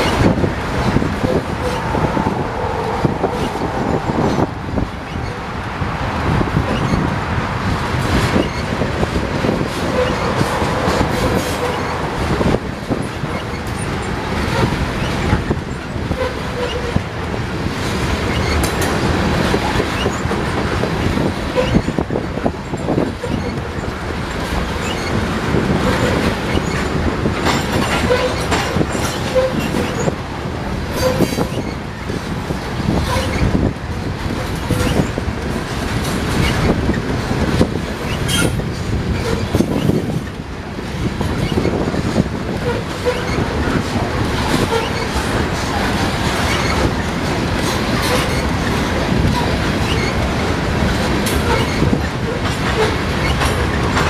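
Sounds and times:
steel wheels rumbling on rails: 0:00.0 - 0:54.0
clicks and clacks: 0:06.2 - 0:30.2, 0:30.9 - 0:54.0
brief wheel squeaks: 0:08.2 - 0:08.8, 0:09.9 - 0:10.5, 0:11.1 - 0:12.0, 0:18.3 - 0:18.8, 0:21.1 - 0:22.0, 0:23.2 - 0:23.8, 0:24.8 - 0:25.2, 0:27.6 - 0:30.2, 0:31.0 - 0:31.8, 0:33.0 - 0:33.6, 0:34.6 - 0:35.2, 0:38.1 - 0:38.6, 0:42.6 - 0:43.8, 0:46.4 - 0:47.0, 0:49.3 - 0:50.2, 0:51.4 - 0:52.0.

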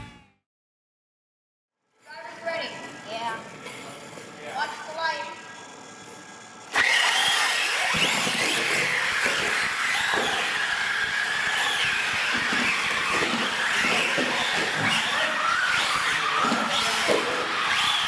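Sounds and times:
electric toy truck motors whining: 0:05.3 - 0:18.0.

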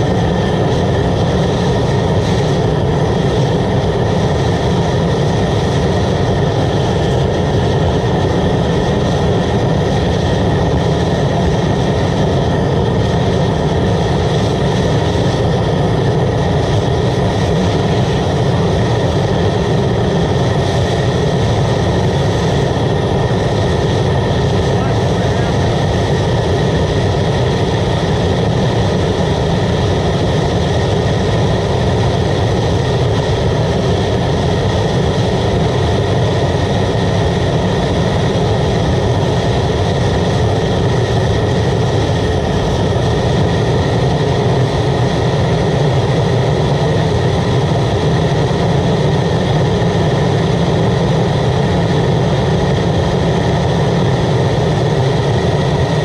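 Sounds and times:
burner flame rushing: 0:00.0 - 0:56.0.

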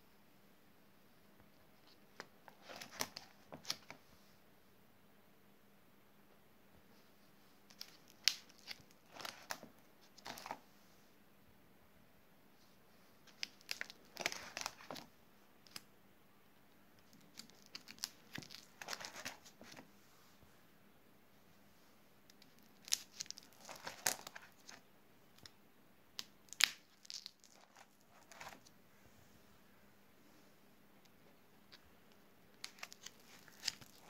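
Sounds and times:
plastic sleeve pages rustling: 0:02.1 - 0:04.0, 0:07.7 - 0:10.6, 0:13.2 - 0:15.1, 0:17.0 - 0:19.9, 0:22.5 - 0:24.8, 0:26.5 - 0:28.7, 0:32.6 - 0:34.0.

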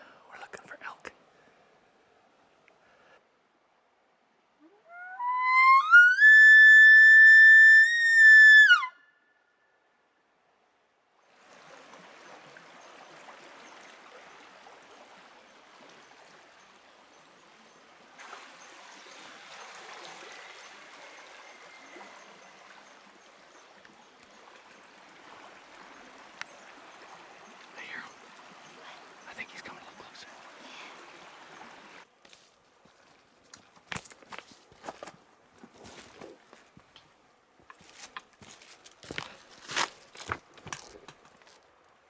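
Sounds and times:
river flowing: 0:01.1 - 0:42.0
elk bugle call whistle: 0:04.6 - 0:09.2.

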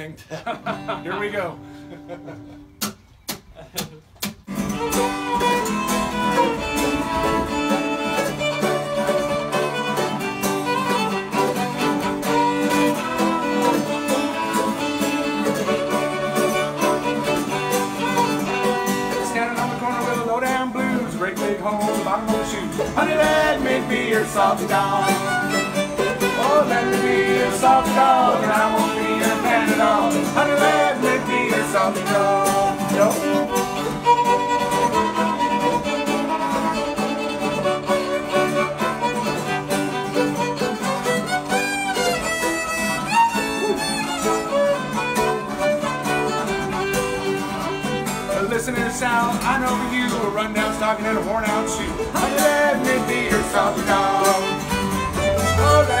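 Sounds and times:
acoustic guitar: 0:00.0 - 0:56.0
mandolin: 0:00.0 - 0:56.0
fiddle playing: 0:04.5 - 0:56.0.

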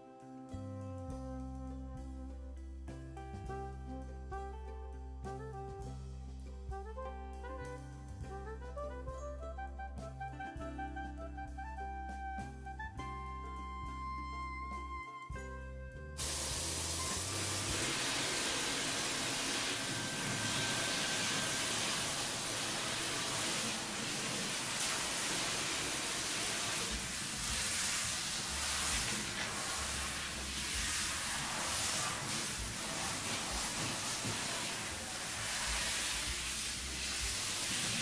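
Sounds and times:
background music: 0:00.0 - 0:38.0
shower head spraying water: 0:16.2 - 0:38.0.

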